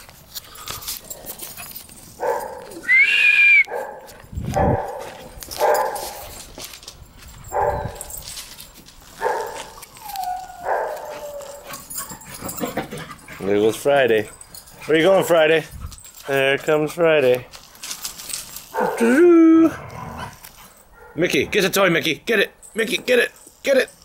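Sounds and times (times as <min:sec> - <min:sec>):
dogs barking: 0:02.2 - 0:02.8, 0:03.7 - 0:06.4, 0:07.4 - 0:08.2, 0:09.2 - 0:13.3, 0:18.7 - 0:19.1, 0:20.9 - 0:21.2
dog whining: 0:09.8 - 0:12.3.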